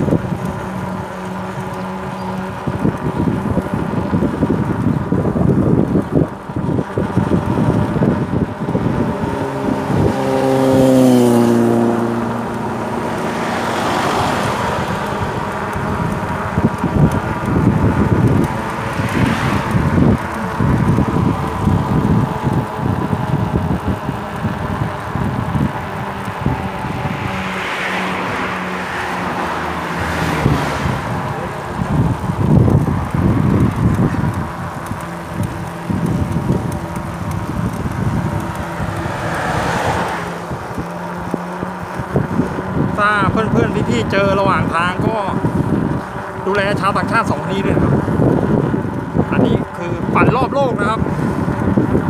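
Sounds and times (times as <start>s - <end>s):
vehicle engine humming: 0.0s - 52.0s
wind buffeting microphone: 0.0s - 52.0s.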